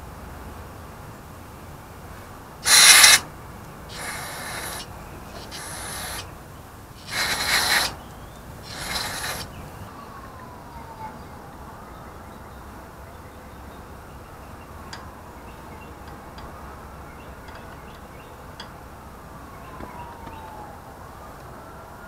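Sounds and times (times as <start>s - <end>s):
aerosol spray can hissing: 2.6s - 3.2s, 3.9s - 6.3s, 7.0s - 8.0s, 8.7s - 9.5s.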